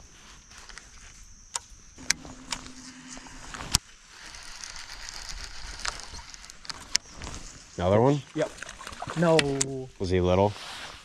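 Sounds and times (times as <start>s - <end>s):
fishing reel clicks: 1.5s - 7.0s
fishing reel humming: 2.0s - 7.1s
high reel whirr: 2.0s - 7.1s.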